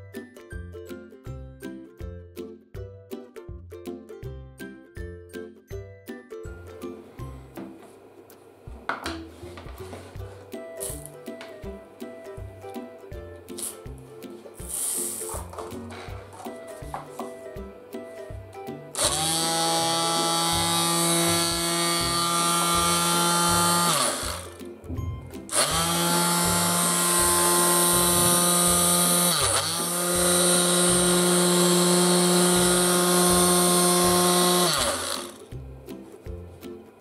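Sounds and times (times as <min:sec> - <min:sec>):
background music with steady beat: 0:00.0 - 0:37.0
detail sander motor hum: 0:19.0 - 0:24.6, 0:25.5 - 0:35.4.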